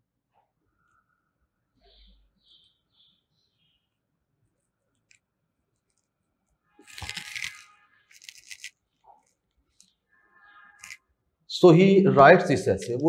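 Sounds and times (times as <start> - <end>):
marker squeaking on whiteboard: 6.8 - 11.2.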